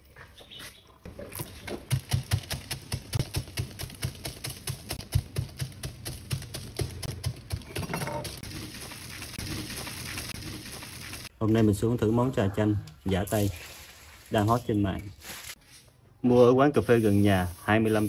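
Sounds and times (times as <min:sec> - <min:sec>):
pestle pounding ice in cup: 0:01.8 - 0:11.3.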